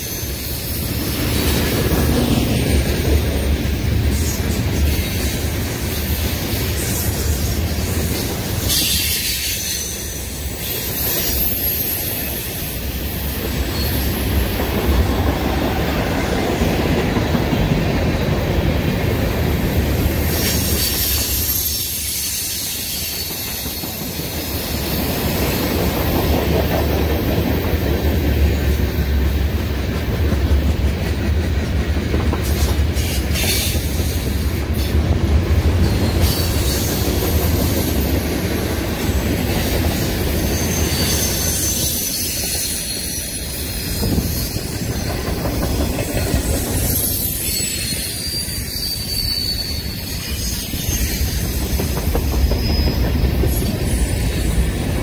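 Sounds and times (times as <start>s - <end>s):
train wheels rumbling on rails: 0.0s - 55.0s
high-pitched wheel squeals: 4.2s - 14.4s, 20.2s - 25.0s, 40.0s - 45.2s, 46.0s - 54.4s.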